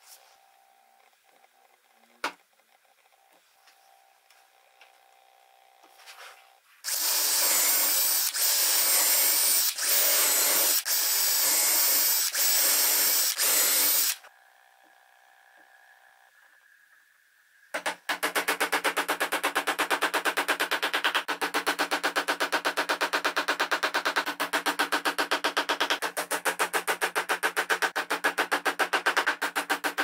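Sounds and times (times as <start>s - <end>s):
electric drill whining: 6.8s - 14.3s.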